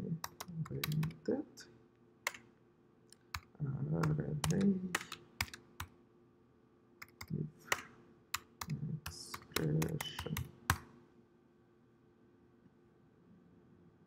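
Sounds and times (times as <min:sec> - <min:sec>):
keyboard typing clicks: 0:00.2 - 0:01.2, 0:02.3 - 0:02.5, 0:03.1 - 0:05.9, 0:07.0 - 0:10.9.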